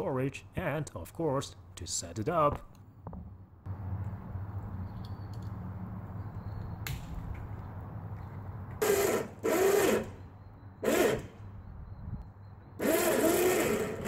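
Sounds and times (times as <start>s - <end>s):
electric winch motor: 8.8s - 11.5s, 12.8s - 14.0s.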